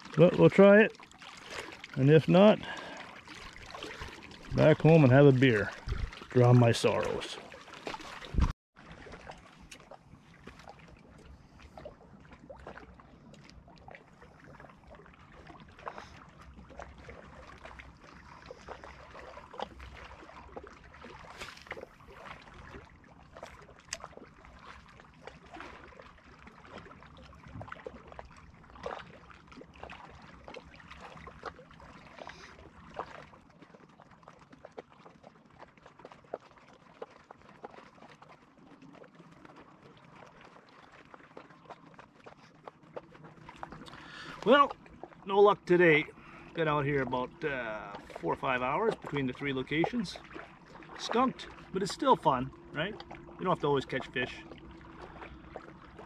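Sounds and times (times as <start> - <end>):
small waves lapping on rocks: 0.0 - 56.0
wind rumbling on microphone: 5.6 - 6.4, 8.2 - 8.5.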